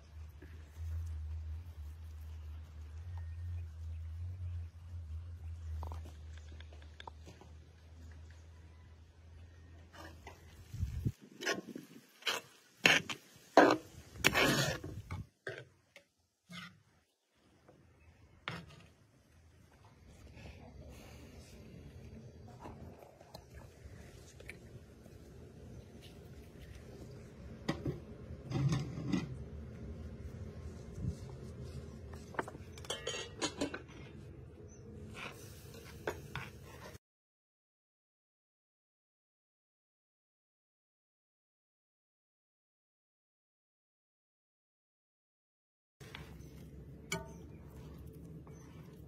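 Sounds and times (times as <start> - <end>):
dishes and utensils clinking: 32.7 - 34.0.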